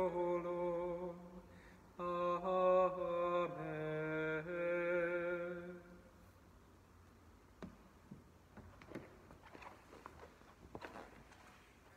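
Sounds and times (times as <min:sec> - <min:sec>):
man singing unaccompanied: 0:00.0 - 0:06.1.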